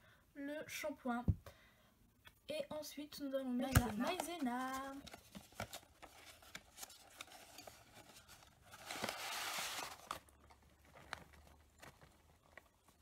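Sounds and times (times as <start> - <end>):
packet crinkling: 3.8 - 13.0.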